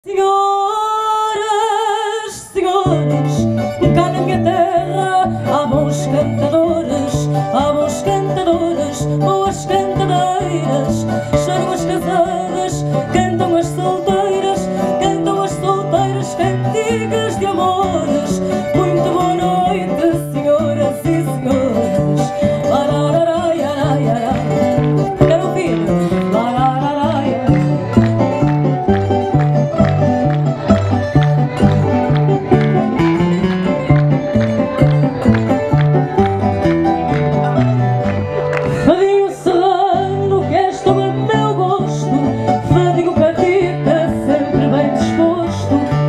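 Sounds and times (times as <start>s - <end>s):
woman singing through a pa: 0.0s - 27.9s, 38.8s - 46.0s
plucked guitars: 2.3s - 46.0s.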